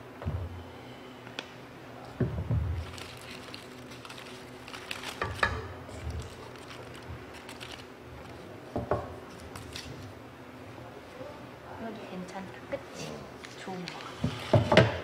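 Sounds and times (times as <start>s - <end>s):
aluminium foil crinkling: 2.8s - 8.5s, 9.3s - 10.0s.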